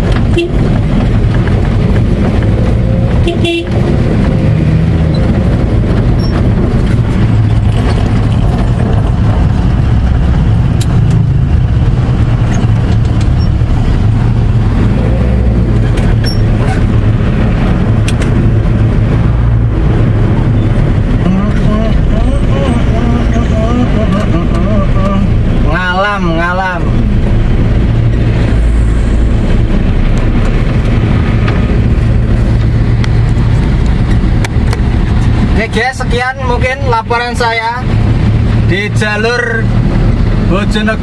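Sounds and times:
truck engine rumbling: 0:00.0 - 0:41.0
horn toot: 0:00.3 - 0:00.7, 0:03.2 - 0:03.8.

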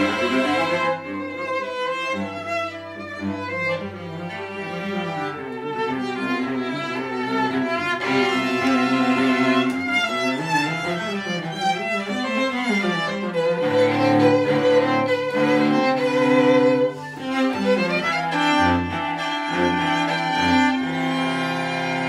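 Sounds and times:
cello playing: 0:00.0 - 0:22.0
violin playing: 0:00.0 - 0:22.0.

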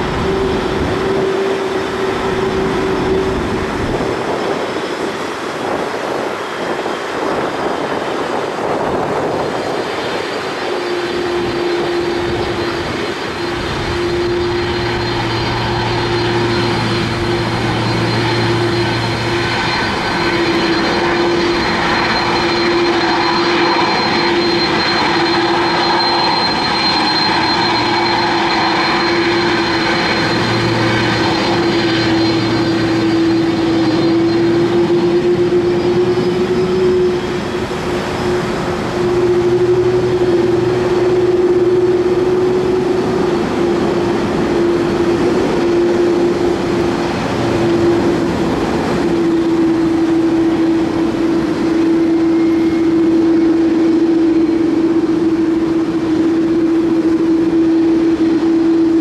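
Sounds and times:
jet engine whine: 0:00.0 - 0:59.0
strong hum: 0:00.0 - 0:59.0.

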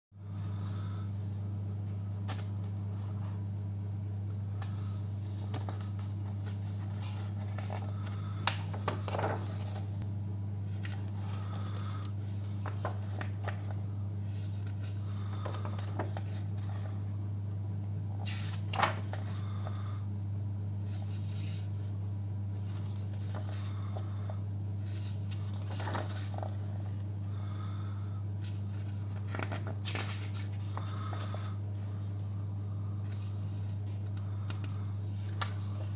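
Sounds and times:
steady low hum: 0:00.2 - 0:35.9
pages rustling and turning: 0:02.2 - 0:03.4, 0:04.6 - 0:09.9, 0:10.7 - 0:17.1, 0:17.8 - 0:19.8, 0:22.5 - 0:27.6, 0:28.4 - 0:35.9.

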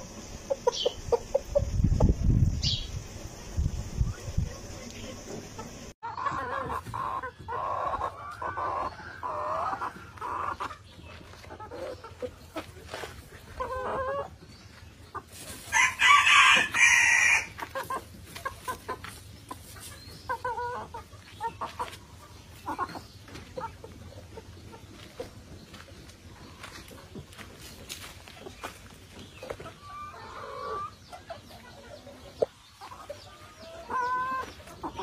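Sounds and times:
chickens clucking: 0:00.0 - 0:35.0
rooster crowing: 0:15.7 - 0:17.5.

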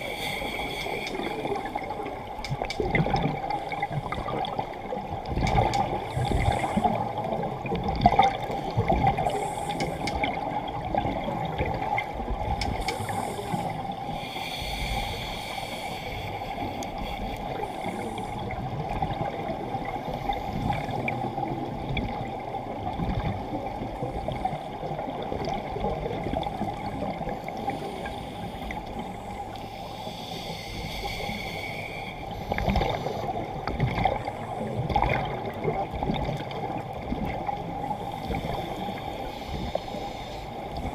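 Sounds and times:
regulator breathing: 0:00.0 - 0:01.8, 0:12.7 - 0:18.5, 0:27.7 - 0:33.4
underwater exhaust bubbles gurgling: 0:00.0 - 0:40.9.

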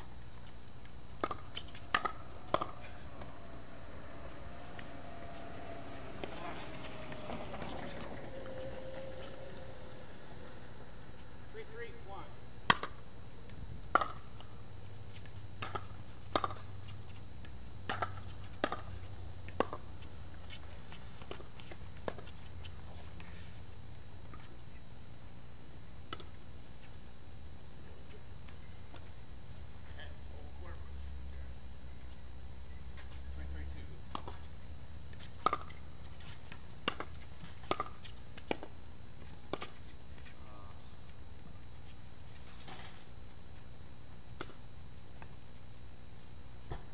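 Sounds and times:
paddles hitting pickleball: 0:00.4 - 0:10.2, 0:12.6 - 0:14.5, 0:15.1 - 0:19.9, 0:34.1 - 0:34.5, 0:35.1 - 0:40.3
ball bouncing on hard court: 0:01.2 - 0:03.3, 0:13.9 - 0:14.2.

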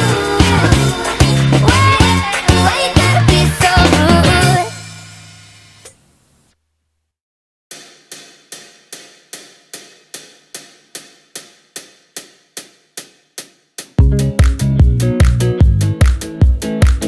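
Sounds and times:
pop beat with heavy bass: 0:00.0 - 0:04.8, 0:07.7 - 0:17.0.

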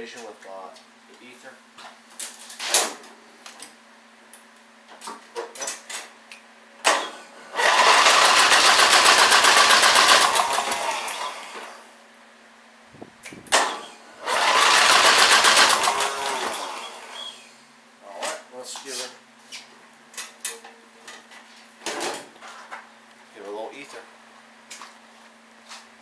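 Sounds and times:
mower engine cranking: 0:07.6 - 0:11.7, 0:13.5 - 0:17.2.

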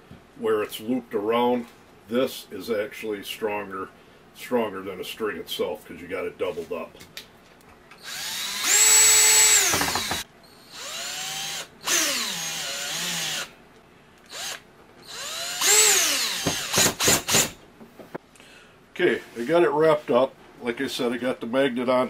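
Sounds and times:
cordless drill driving screws: 0:08.0 - 0:13.5, 0:14.3 - 0:17.6
drill trigger pulses: 0:08.0 - 0:13.5, 0:14.3 - 0:17.6.

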